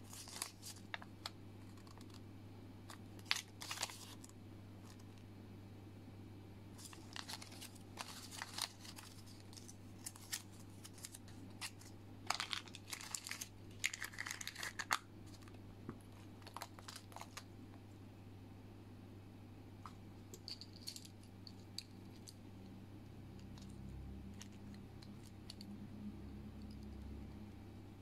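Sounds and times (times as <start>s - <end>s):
plastic packaging crinkling: 0.0s - 2.2s, 2.9s - 5.2s, 6.8s - 17.5s, 23.4s - 25.8s
low hum: 17.4s - 28.0s.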